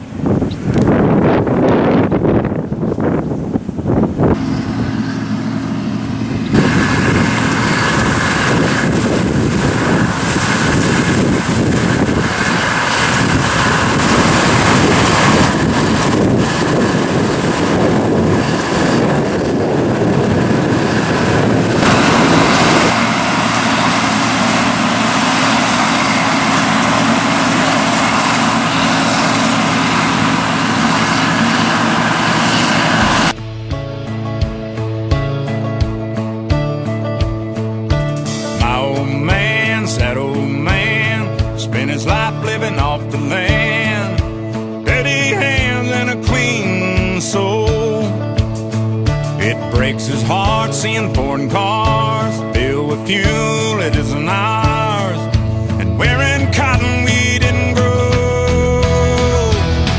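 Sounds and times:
wind noise on microphone: 0:00.0 - 0:33.4
loud steady machine hum: 0:00.0 - 0:34.8, 0:37.5 - 0:59.9.

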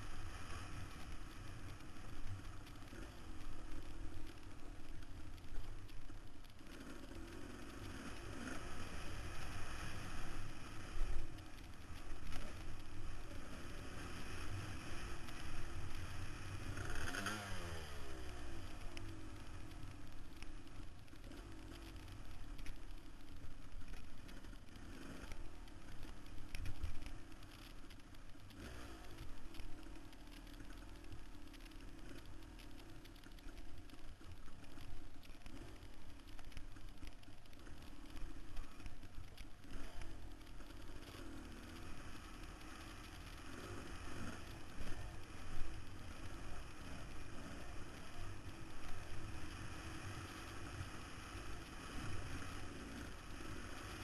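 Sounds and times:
dirt bike engine revving: 0:16.6 - 0:18.1.

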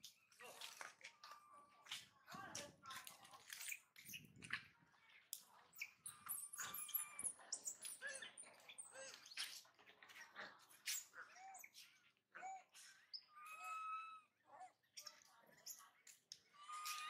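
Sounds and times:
small birds chirping: 0:00.0 - 0:17.0
baby monkey crying: 0:13.3 - 0:14.7.

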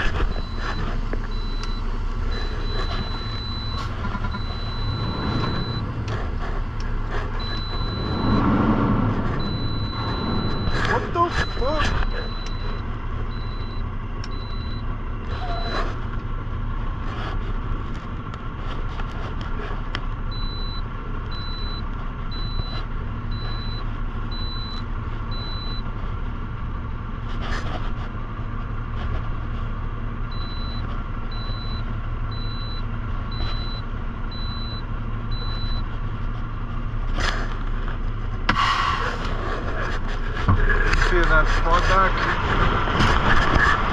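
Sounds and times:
truck engine idling: 0:00.0 - 0:43.9
reversing alarm beeps: 0:00.3 - 0:06.2, 0:07.4 - 0:08.6, 0:09.4 - 0:15.9, 0:20.3 - 0:25.8, 0:30.3 - 0:35.9.

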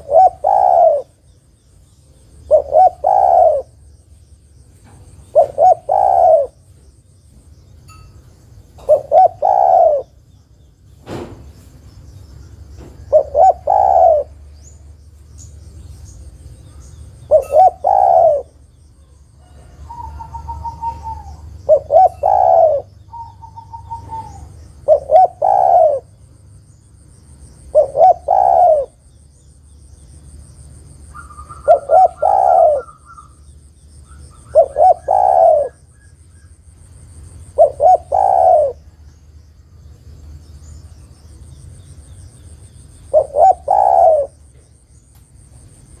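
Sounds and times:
dove cooing: 0:00.0 - 0:01.2, 0:02.4 - 0:03.8, 0:05.0 - 0:06.8, 0:08.8 - 0:10.2, 0:12.8 - 0:14.7, 0:17.2 - 0:18.6, 0:19.4 - 0:26.2, 0:27.6 - 0:29.1, 0:31.1 - 0:33.4, 0:34.1 - 0:36.5, 0:37.4 - 0:38.9, 0:43.0 - 0:44.8.

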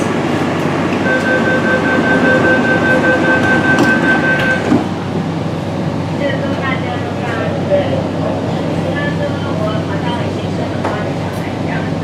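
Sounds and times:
train running noise: 0:00.0 - 0:12.0
high-pitched brake tone: 0:01.0 - 0:04.7.

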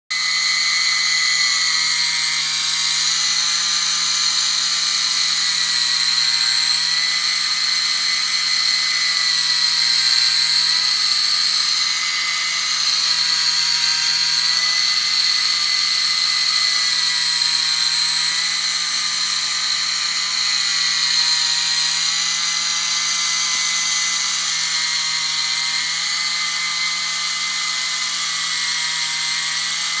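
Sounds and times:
gearmotor whining: 0:00.1 - 0:30.0.

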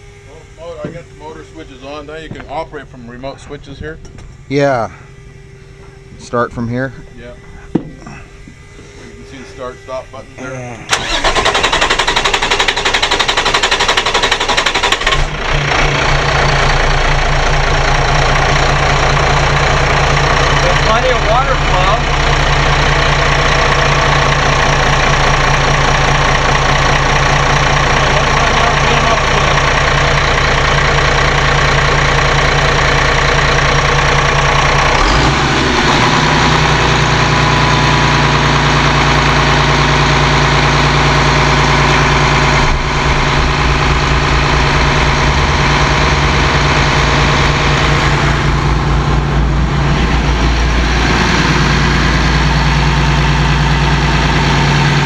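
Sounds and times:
diesel engine idling: 0:00.0 - 0:55.0.

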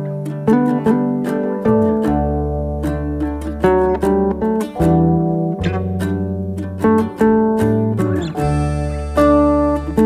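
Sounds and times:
plucked melody: 0:00.0 - 0:10.0
low held bass note: 0:04.0 - 0:10.0.

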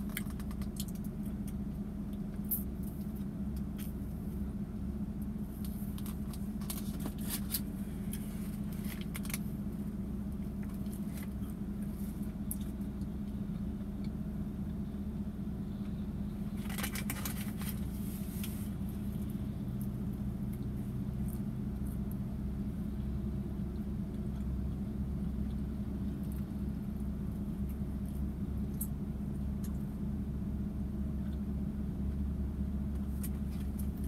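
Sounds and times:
vehicle cabin hum: 0:00.0 - 0:34.0
paper wrapper crinkling: 0:16.6 - 0:17.9.

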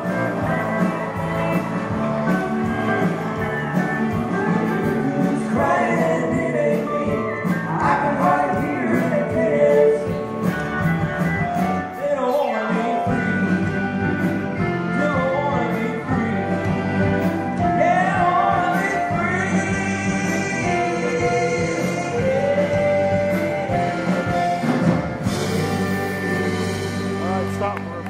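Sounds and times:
live country band with singing: 0:00.0 - 0:28.0.

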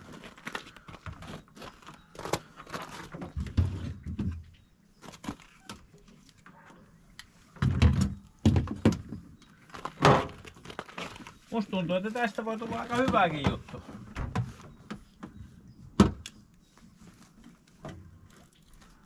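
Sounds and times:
hands handling plastic shelves: 0:12.0 - 0:15.4.

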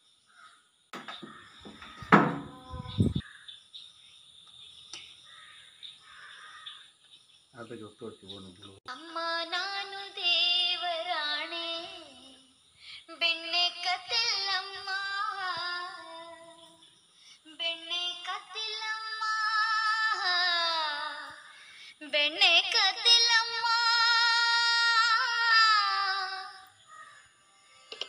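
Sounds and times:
high voice singing unaccompanied: 0:02.2 - 0:03.2, 0:08.9 - 0:26.8.

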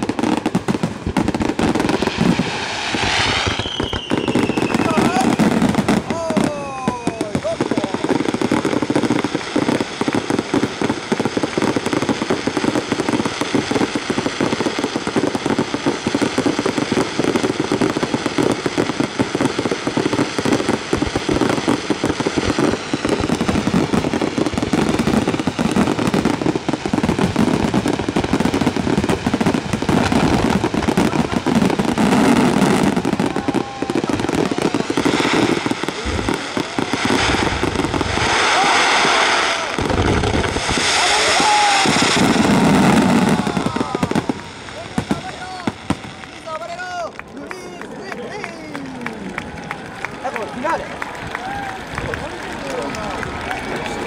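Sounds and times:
firework shells bursting: 0:00.0 - 0:46.5.

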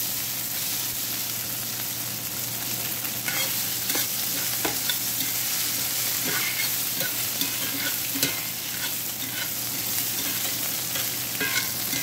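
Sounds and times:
food sizzling in oil: 0:00.0 - 0:12.0
spatula scraping pan: 0:03.3 - 0:12.0.

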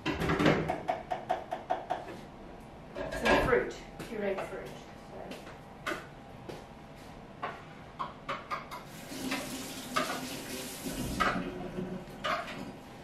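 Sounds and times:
dishes and utensils clattering: 0:03.0 - 0:03.5, 0:08.3 - 0:10.3, 0:11.0 - 0:12.8.

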